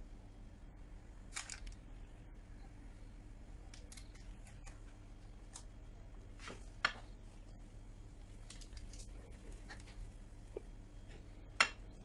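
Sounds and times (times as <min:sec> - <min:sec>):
low steady hum: 0:00.0 - 0:12.0
baking paper crinkling: 0:01.3 - 0:01.8, 0:08.2 - 0:10.1.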